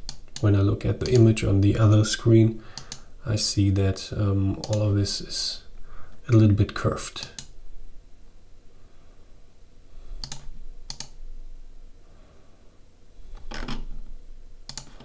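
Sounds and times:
computer mouse clicks: 0.0s - 0.4s, 2.8s - 3.0s, 4.6s - 4.8s, 7.2s - 7.6s, 10.2s - 11.2s, 14.7s - 15.0s.

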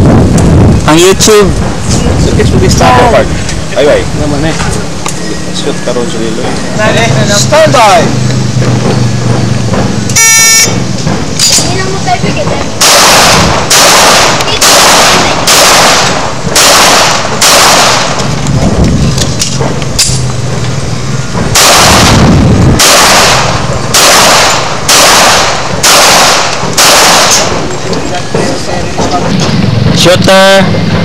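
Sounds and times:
handgun shots: 12.8s - 18.3s, 21.6s - 22.2s, 22.8s - 27.6s.

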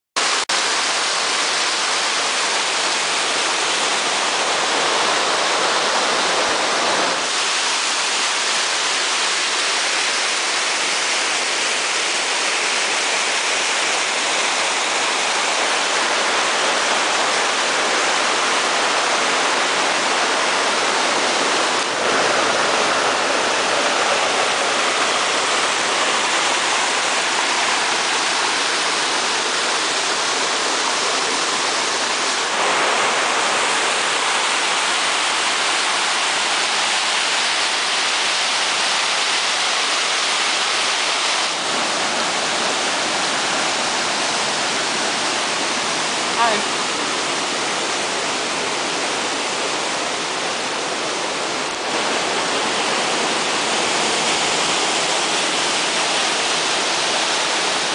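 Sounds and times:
waterfall rushing over rocks: 0.2s - 57.9s.

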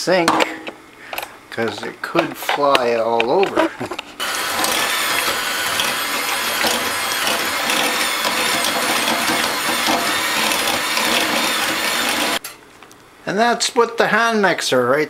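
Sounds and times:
electric hand mixer running: 4.2s - 12.4s.

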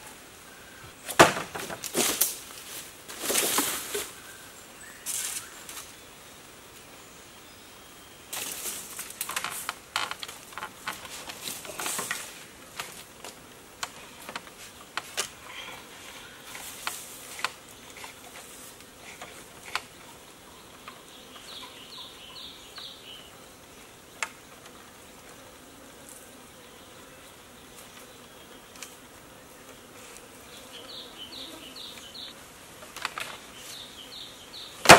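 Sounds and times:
faint insect buzz: 0.0s - 34.9s
bamboo poles knocking together: 1.1s - 2.4s.

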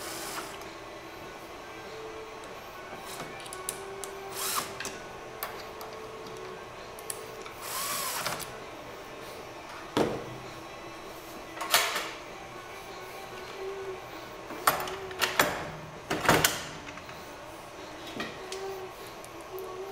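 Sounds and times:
cordless drill whirring: 4.3s - 4.8s, 7.6s - 8.4s.

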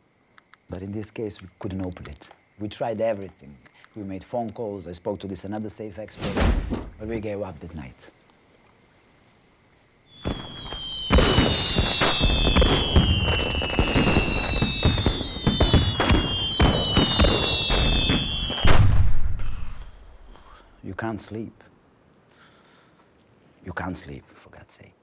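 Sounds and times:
fireworks crackling and banging: 10.1s - 20.6s
fireworks whistling: 10.1s - 20.8s
loud firework boom: 10.2s - 20.5s.

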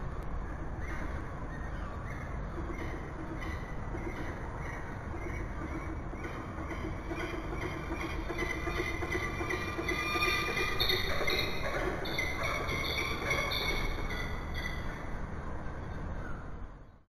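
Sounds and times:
low background rumble: 0.0s - 17.0s
falcons calling: 1.8s - 15.0s.

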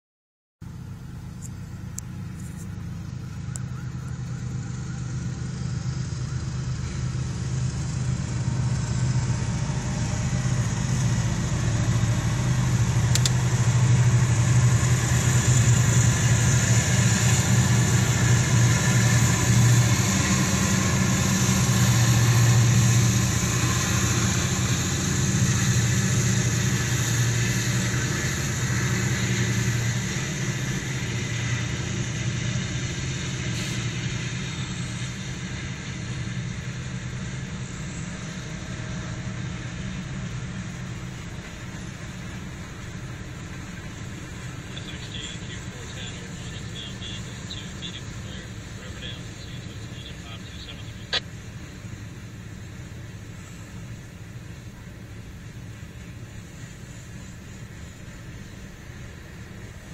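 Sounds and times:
diesel locomotive engines droning: 0.6s - 59.9s
freight cars wheel-on-rail noise: 0.6s - 59.9s
sharp click: 13.1s - 13.4s.

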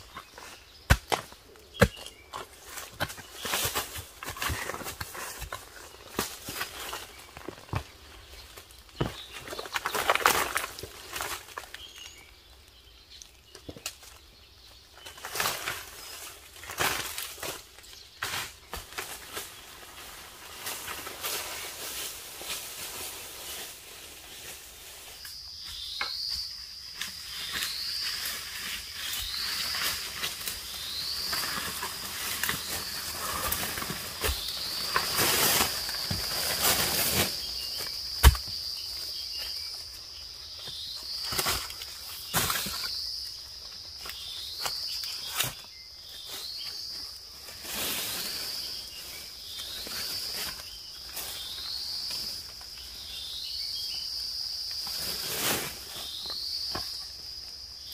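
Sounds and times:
footsteps in dry leaf litter: 27.1s - 39.7s, 44.1s - 52.6s.

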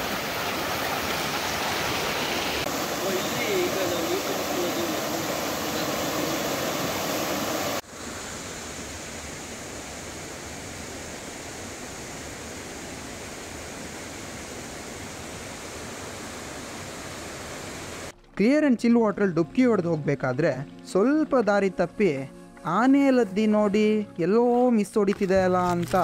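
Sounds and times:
rushing water: 0.0s - 18.4s.

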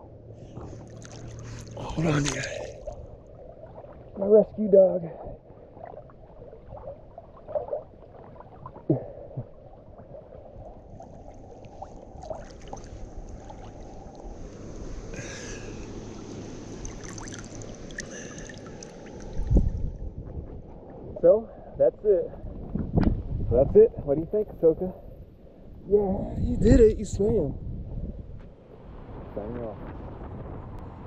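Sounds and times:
muffled water sloshing and splashing: 0.0s - 23.6s.

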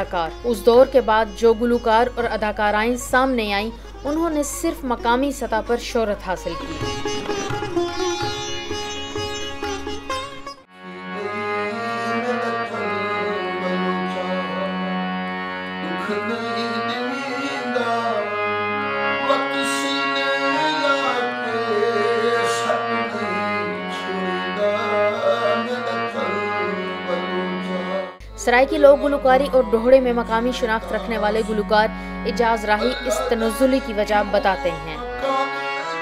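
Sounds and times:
harmonium: 0.0s - 36.0s
man singing folk melody: 11.0s - 14.9s, 35.1s - 35.9s.

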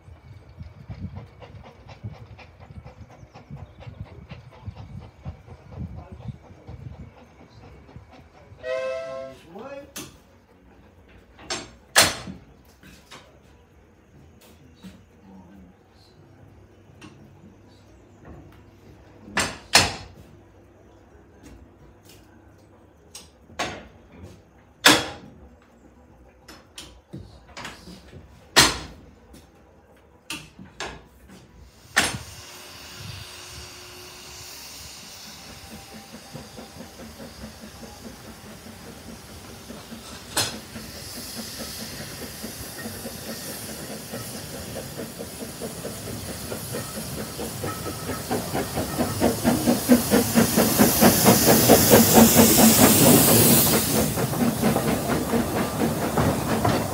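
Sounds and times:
steam locomotive exhaust beats: 0.0s - 56.9s
steam hissing: 0.2s - 11.0s, 31.3s - 56.9s.

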